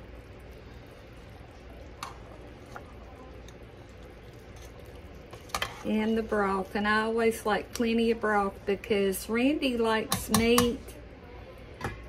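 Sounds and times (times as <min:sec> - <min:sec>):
low steady hum: 0:00.0 - 0:12.0
spoon stirring in a pot: 0:00.1 - 0:08.8, 0:09.8 - 0:10.9.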